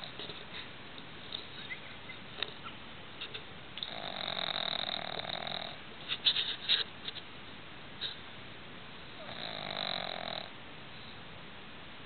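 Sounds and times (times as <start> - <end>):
dog snoring loudly: 3.8 - 5.8, 9.2 - 10.5.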